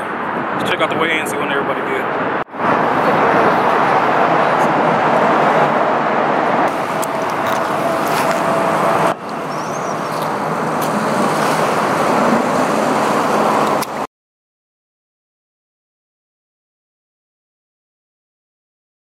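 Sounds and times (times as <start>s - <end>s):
highway traffic rushing: 0.0s - 14.1s.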